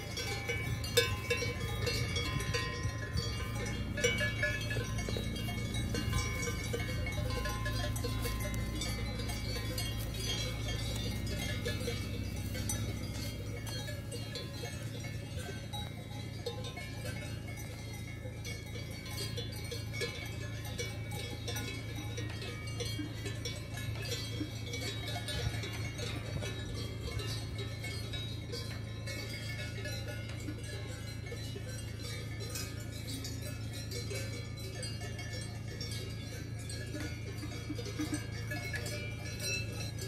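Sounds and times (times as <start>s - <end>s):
cowbells clanking: 0.0s - 40.0s
low hum: 0.0s - 40.0s.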